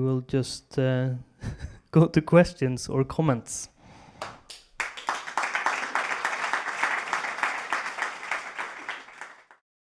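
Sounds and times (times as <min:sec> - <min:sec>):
audience applauding: 0:04.2 - 0:09.6.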